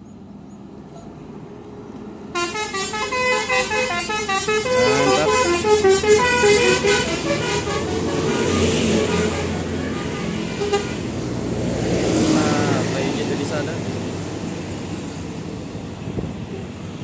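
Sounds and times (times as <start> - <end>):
bus engine rumble: 0.0 - 17.0
bus musical air horn melody: 2.3 - 11.2.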